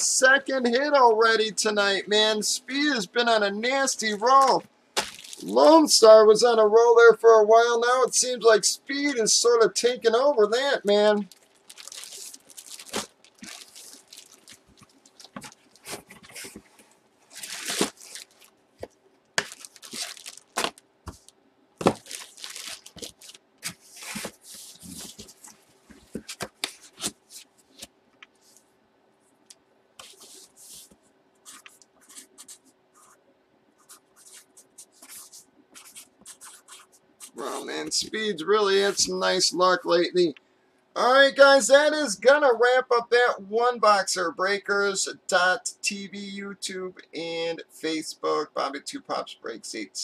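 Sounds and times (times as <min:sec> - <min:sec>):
faint steady hum: 0:00.0 - 0:50.0
plastic bag crinkling: 0:05.0 - 0:05.5, 0:11.2 - 0:18.6, 0:19.4 - 0:27.9
cardboard rustling and scraping: 0:11.3 - 0:28.6.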